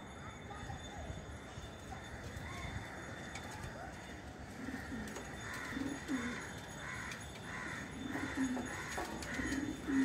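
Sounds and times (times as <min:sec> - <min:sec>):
pigeons cooing: 0:03.6 - 0:10.0.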